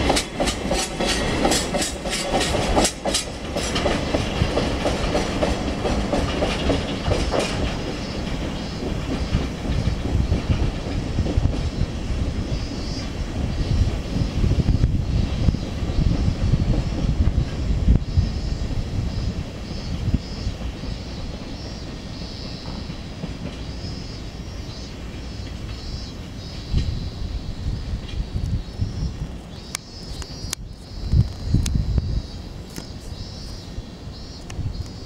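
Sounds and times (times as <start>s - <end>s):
wheels clicking over rail joints: 0.0s - 18.2s, 19.1s - 27.1s
rumble of passing wagons: 0.0s - 35.0s.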